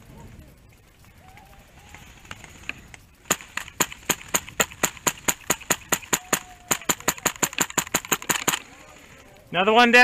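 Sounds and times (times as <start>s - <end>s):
airsoft rifle rapid shots: 3.2s - 8.8s.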